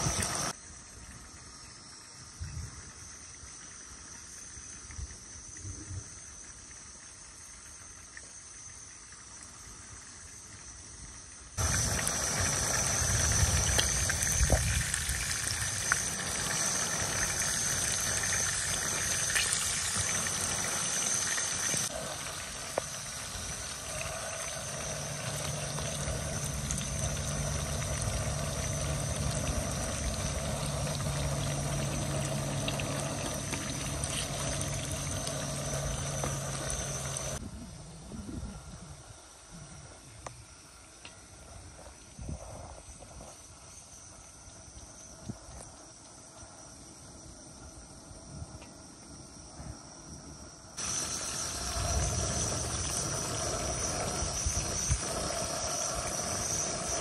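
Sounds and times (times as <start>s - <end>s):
chicken sizzling in hot oil: 0.0s - 0.5s, 11.6s - 37.4s, 50.8s - 57.0s
outdoor background sound: 0.0s - 57.0s.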